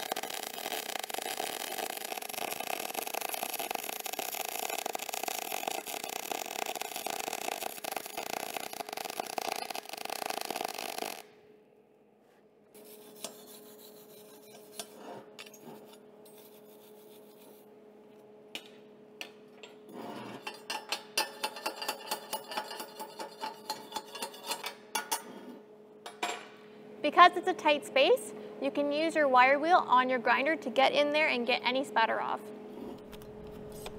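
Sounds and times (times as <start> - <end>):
welding arc crackling: 0.0 - 11.4
wire brush scrubbing metal: 12.8 - 15.0.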